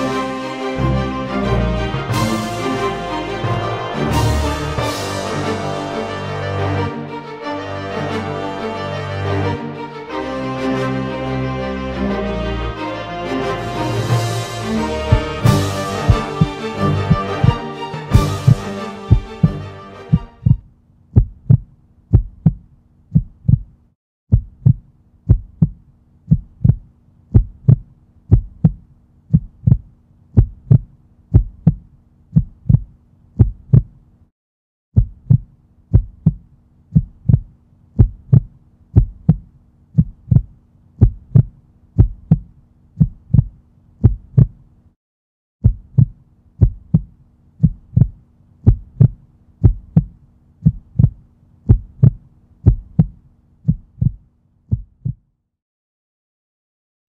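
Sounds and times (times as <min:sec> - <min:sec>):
heartbeat double thump: 0:15.1 - 0:17.6, 0:18.2 - 0:20.6, 0:21.2 - 0:34.0, 0:35.0 - 0:44.6, 0:45.6 - 0:55.3.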